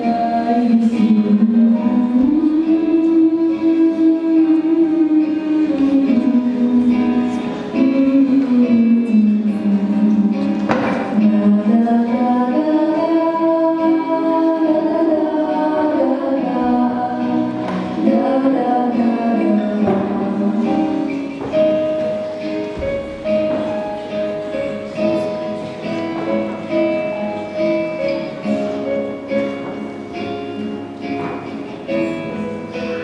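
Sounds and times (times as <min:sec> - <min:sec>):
instrumental accompaniment: 0:00.0 - 0:33.0
female vocal group singing: 0:11.2 - 0:21.0.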